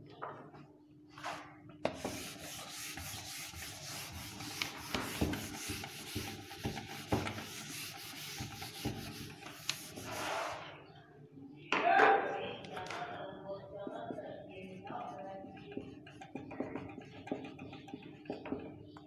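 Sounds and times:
eraser rubbing on whiteboard: 1.9 - 10.6, 14.0 - 18.5.

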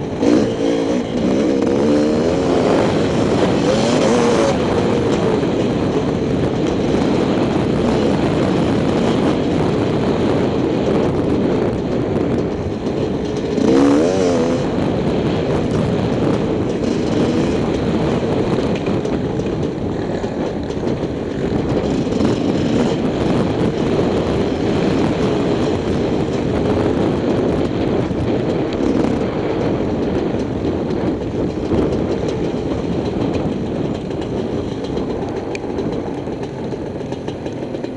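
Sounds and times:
dirt bike engine revving: 0.0 - 9.4, 12.9 - 20.5, 21.4 - 25.3.

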